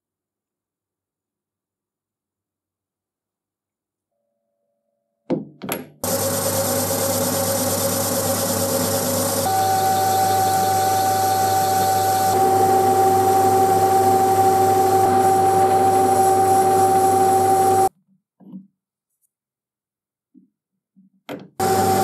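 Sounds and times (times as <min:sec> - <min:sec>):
metal lathe whining: 0:06.0 - 0:17.9, 0:21.6 - 0:22.0.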